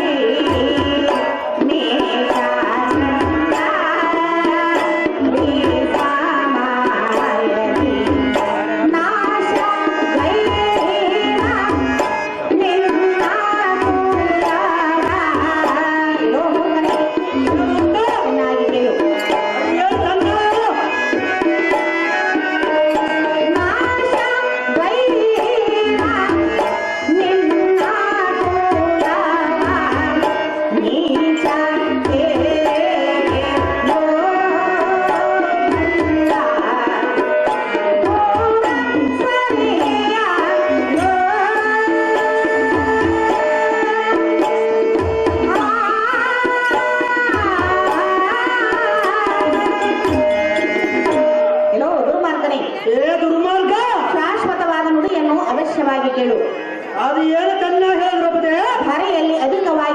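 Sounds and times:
tabla hand drums: 0.0 - 59.9
gliding melody line: 49.4 - 52.0.

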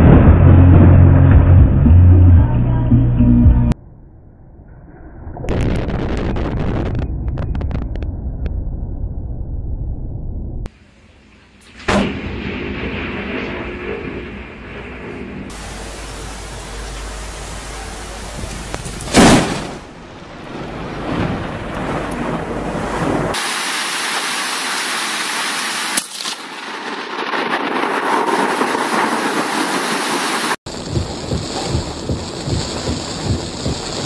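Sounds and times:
thunder crack and rumble: 0.0 - 2.4, 3.7 - 10.8, 11.6 - 23.4, 26.6 - 34.0
low pulsing thuds: 0.0 - 3.8, 4.6 - 10.7, 30.7 - 34.0
wind: 3.8 - 34.0
heavy rain: 15.5 - 34.0.

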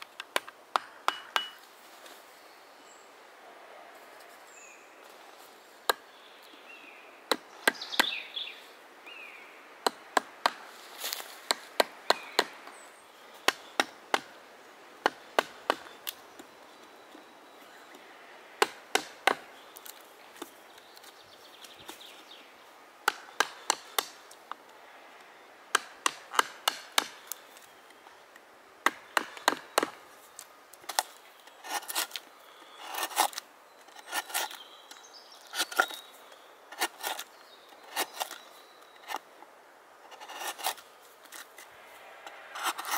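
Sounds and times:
wood chips cracking under chisel: 28.9 - 36.1, 36.7 - 39.2
chisel scraping wood: 31.6 - 32.2, 32.8 - 34.6, 35.5 - 36.0, 36.7 - 38.4, 40.0 - 41.5, 42.5 - 42.9.

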